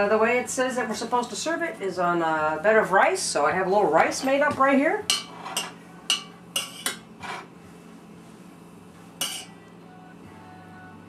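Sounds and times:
spoon scraping saucepan: 0:05.1 - 0:07.5, 0:09.2 - 0:09.5.

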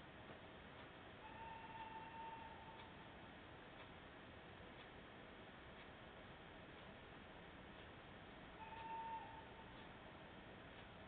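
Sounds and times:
faint steady tone: 0:00.0 - 0:11.0
faint ticks: 0:02.7 - 0:03.0, 0:05.7 - 0:06.0, 0:08.6 - 0:10.0.

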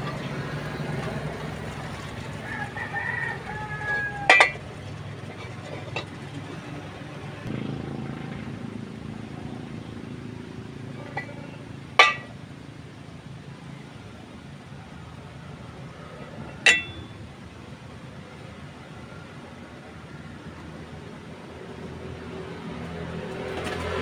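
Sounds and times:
steel pipe clinking on steel plate: 0:03.9 - 0:04.6, 0:12.0 - 0:12.4, 0:16.5 - 0:17.2.

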